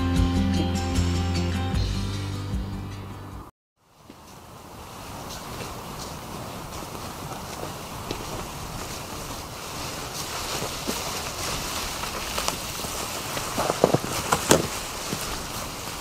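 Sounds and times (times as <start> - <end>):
branches dragged over leaves: 3.8 - 16.0
footsteps through dry leaves: 3.8 - 16.0
wind buffeting microphone: 4.2 - 16.0
woody cracks from branches: 5.1 - 16.0.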